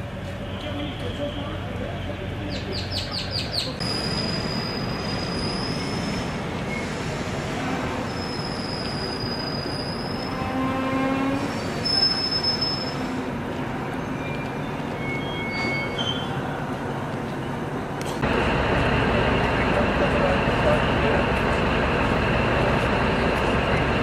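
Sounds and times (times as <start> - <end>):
train rumbling on rails: 0.0 - 24.0
high-pitched wheel squeals: 3.8 - 7.0, 7.9 - 13.2, 14.0 - 16.4.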